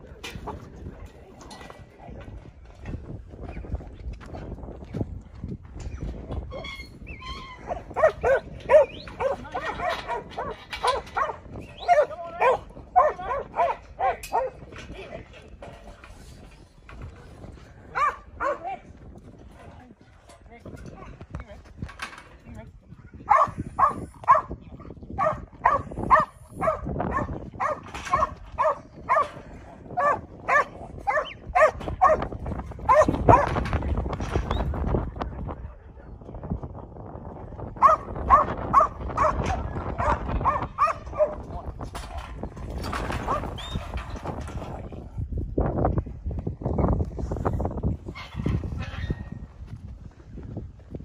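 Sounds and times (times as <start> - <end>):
dog barking: 7.7 - 14.6, 17.9 - 18.7, 23.3 - 24.5, 25.2 - 29.3, 30.0 - 32.2, 32.9 - 33.5, 37.8 - 41.4.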